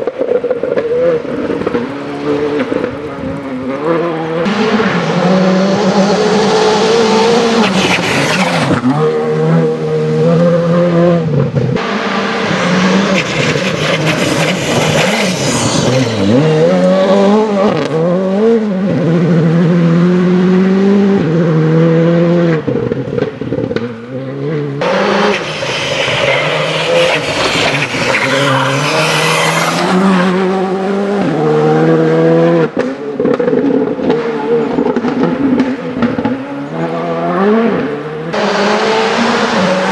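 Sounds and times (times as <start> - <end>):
rally car engine revving: 0.0 - 39.9
tyres hissing on gravel: 25.3 - 29.9.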